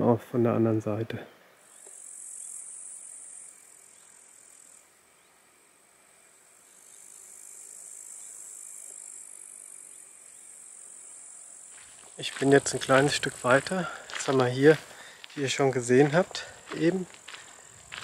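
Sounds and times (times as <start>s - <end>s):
insects chirring: 1.6s - 18.0s.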